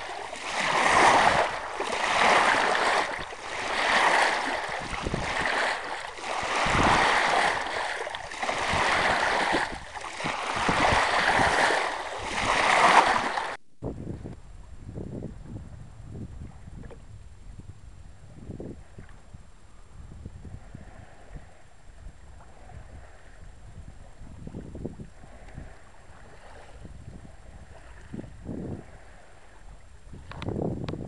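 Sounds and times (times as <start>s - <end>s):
water splashing along boat hull: 0.0s - 13.6s, 20.5s - 31.0s
wind: 0.0s - 31.0s.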